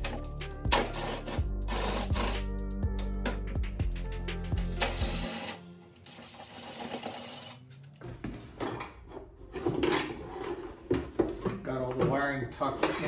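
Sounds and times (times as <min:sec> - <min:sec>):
cordless drill running: 0:04.8 - 0:07.6.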